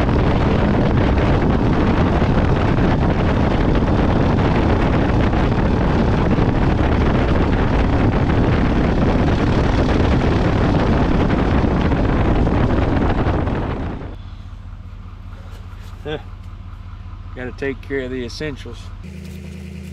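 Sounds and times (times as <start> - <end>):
wind buffeting microphone: 0.0 - 15.8
low engine hum: 0.0 - 19.9
road noise: 0.0 - 19.9.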